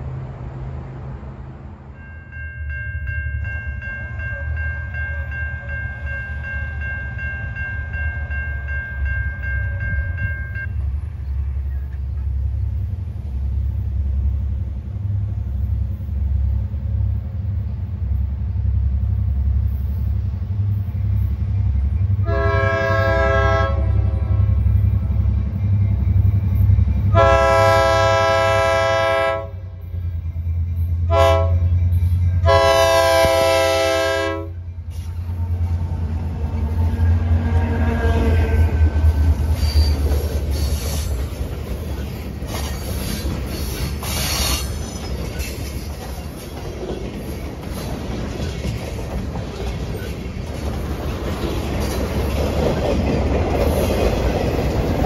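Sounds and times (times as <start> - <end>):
diesel locomotive engine rumble: 0.0 - 55.0
locomotive horn blasts: 22.2 - 24.5, 27.1 - 29.8, 31.1 - 31.7, 32.4 - 34.6.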